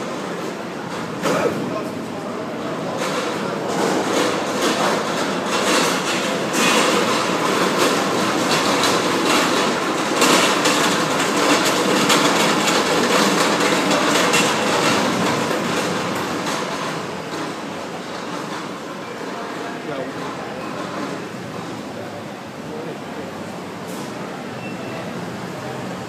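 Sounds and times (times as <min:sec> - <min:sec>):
busy airport terminal din: 0:00.0 - 0:26.0.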